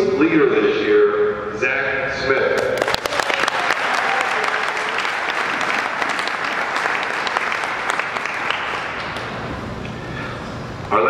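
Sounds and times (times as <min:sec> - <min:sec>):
audience applauding: 0:02.6 - 0:09.5.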